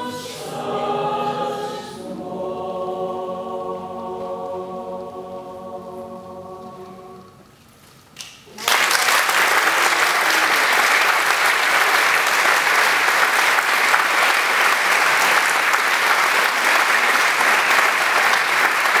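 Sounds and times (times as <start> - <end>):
audience applauding: 8.5 - 19.0.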